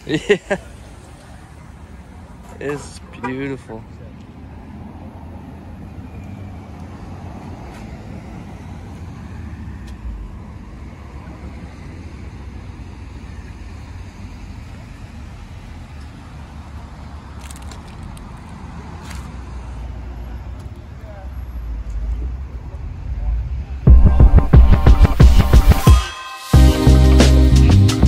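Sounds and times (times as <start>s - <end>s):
low outdoor rumble: 20.5s - 25.9s.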